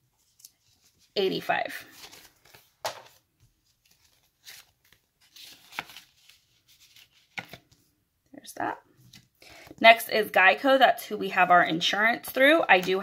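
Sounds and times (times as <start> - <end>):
paper banknotes rustling: 0.2 - 7.8, 12.3 - 13.0.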